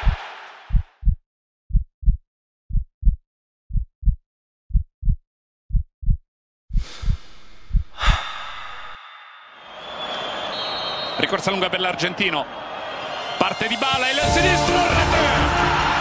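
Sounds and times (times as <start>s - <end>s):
heartbeat thumps: 0.0s - 8.3s.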